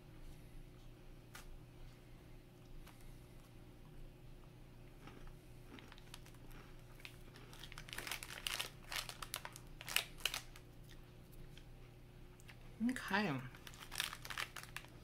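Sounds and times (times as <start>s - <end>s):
plastic wrapper crinkling: 5.9s - 6.4s, 7.0s - 10.6s, 13.5s - 15.0s.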